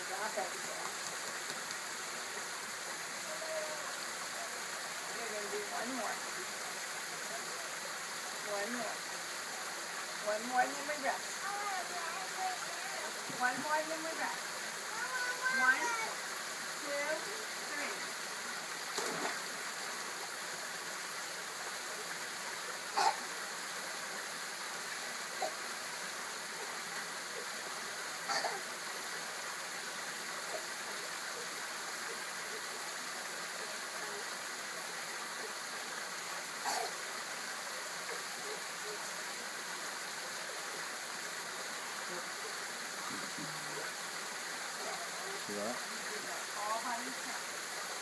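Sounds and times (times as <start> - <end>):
water trickling from rock waterfall: 0.0 - 48.0
water splash: 18.8 - 19.6.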